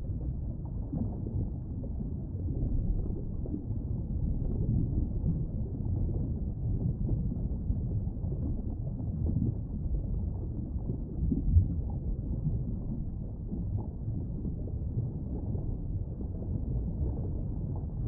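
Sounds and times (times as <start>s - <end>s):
underwater rumble: 0.0s - 18.0s.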